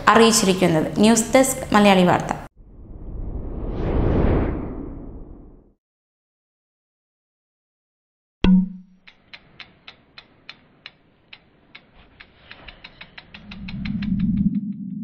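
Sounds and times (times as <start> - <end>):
low swelling sound: 2.6 - 5.7
mechanical ticks: 9.0 - 15.0.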